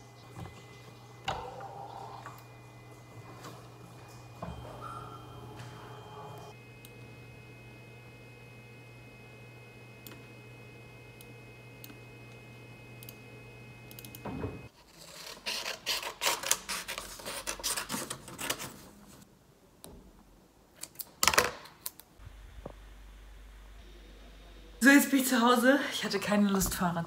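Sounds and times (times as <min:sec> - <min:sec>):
steady low hum: 0:00.0 - 0:14.7, 0:22.2 - 0:27.0
paper rustling: 0:14.8 - 0:19.2.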